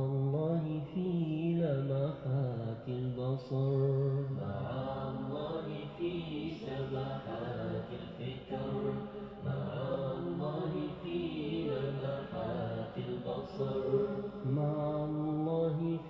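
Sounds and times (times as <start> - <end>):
man singing chant-like phrases: 0.0 - 16.0.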